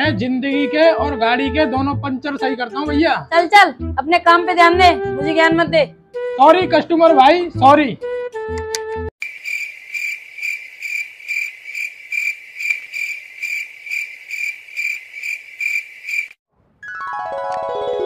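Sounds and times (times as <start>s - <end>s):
cricket chirping: 9.2s - 16.4s.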